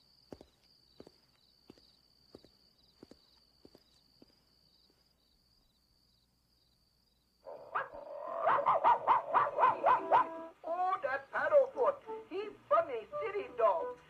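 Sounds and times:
faint footsteps: 0.0 - 5.2
night insects chirping: 0.0 - 13.4
cartoon animal-like cries on television: 7.7 - 10.5.

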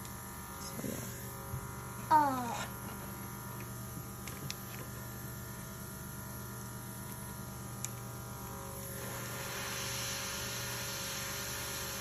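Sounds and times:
airbrush spraying hiss: 9.0 - 12.0.

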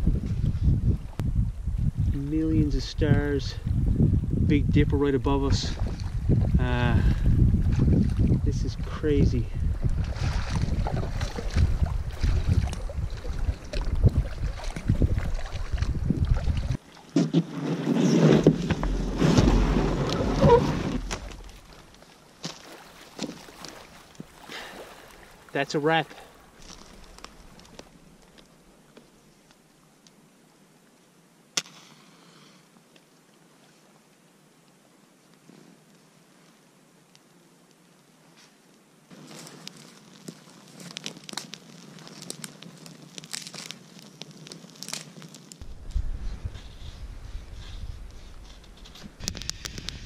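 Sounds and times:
wind buffeting microphone: 0.0 - 16.8, 45.6 - 50.0
canoe paddling water sounds: 5.2 - 36.8
scraping and rustling on rocky shore: 5.5 - 29.5, 35.4 - 36.6, 38.2 - 50.0
faint rustle: 26.1 - 50.0
match striking and fizzing: 31.6 - 32.1, 39.2 - 45.6.

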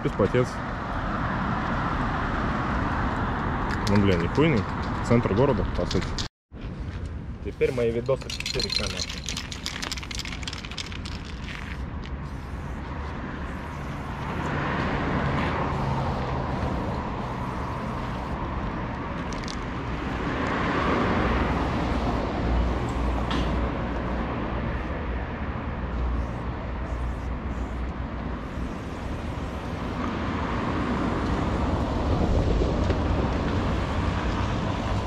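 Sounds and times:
cars passing: 0.0 - 5.8, 6.6 - 35.0
traffic rumble: 0.0 - 35.0
sharp clicks or rattling: 8.1 - 11.5.

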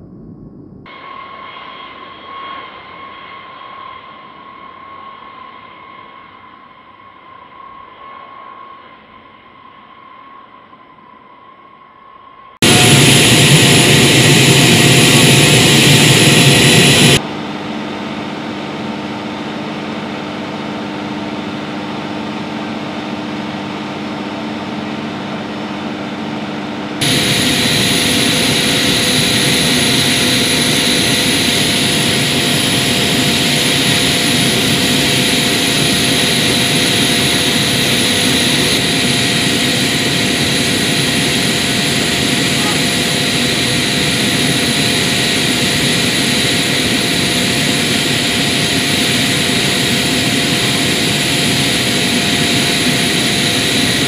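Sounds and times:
machinery hum: 0.0 - 54.0
jet engine whining: 12.6 - 54.0.

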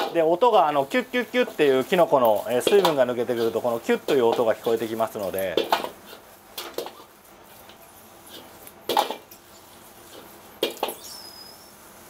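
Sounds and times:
ladle clanks on wok: 2.6 - 3.5
metal ladle scraping wok: 5.6 - 11.7
short high squeak: 10.9 - 11.9.

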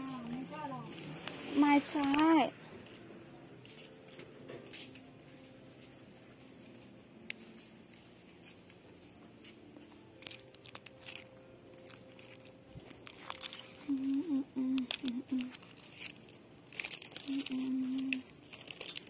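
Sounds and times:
plastic packaging crinkling: 1.2 - 3.1, 6.4 - 19.0
person humming: 13.8 - 15.6, 17.2 - 18.3.

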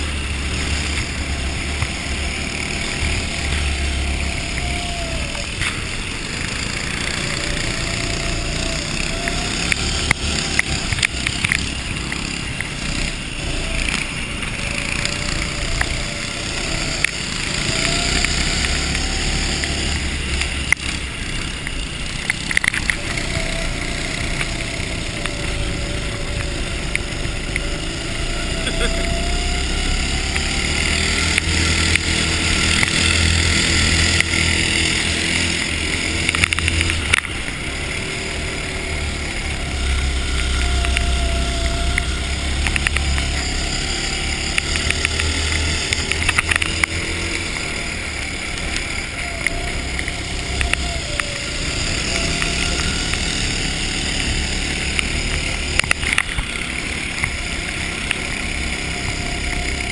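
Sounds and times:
go-kart engine revving: 0.0 - 59.9
sharp ticks and knocks: 0.2 - 59.9.

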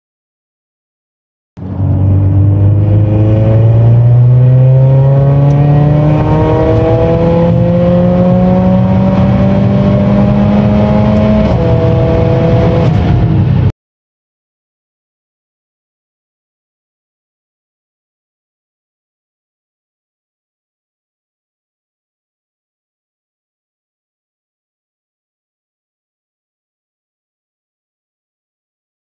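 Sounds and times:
turbocharged car engine accelerating: 1.6 - 13.7.

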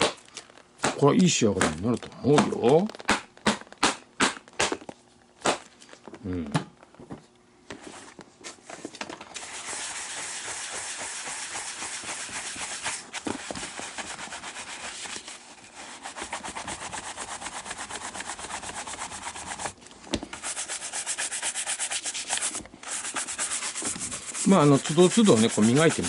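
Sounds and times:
bristle brush scrubbing leather: 9.4 - 19.8, 20.4 - 26.0.

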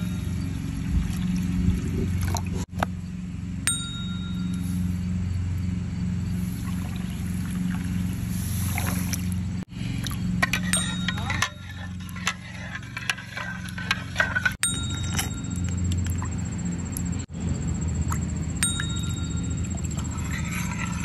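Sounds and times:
steady low hum: 0.0 - 21.0
bright ding: 3.7 - 4.9, 14.6 - 16.0, 18.6 - 19.8.

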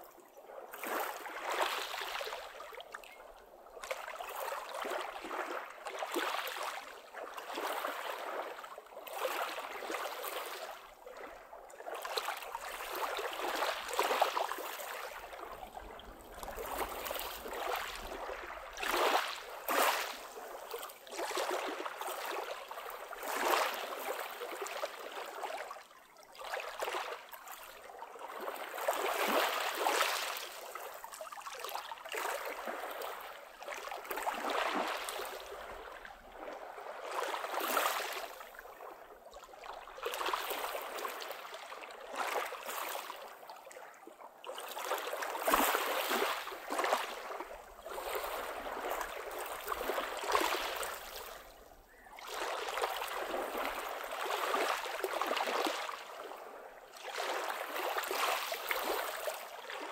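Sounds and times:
waves lapping on pebble shore: 12.1 - 22.5, 44.8 - 51.4.

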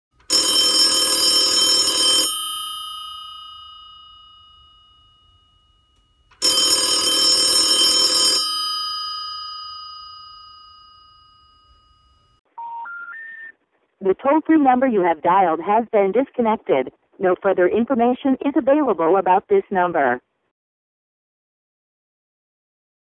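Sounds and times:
telephone bell ringing: 0.2 - 13.5.

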